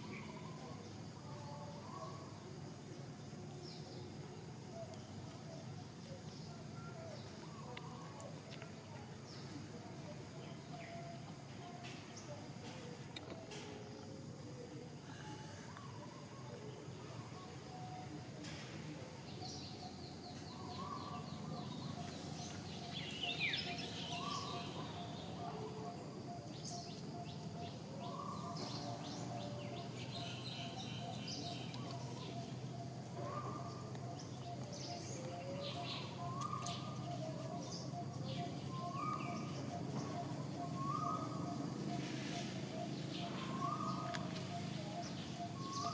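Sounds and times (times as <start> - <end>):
birds calling: 19.3 - 45.9.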